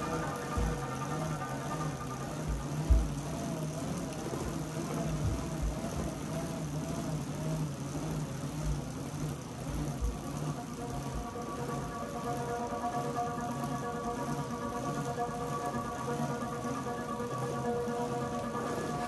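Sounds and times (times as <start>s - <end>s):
bicycle tyres humming on rollers: 0.0s - 19.0s
low thumps: 0.4s - 1.1s.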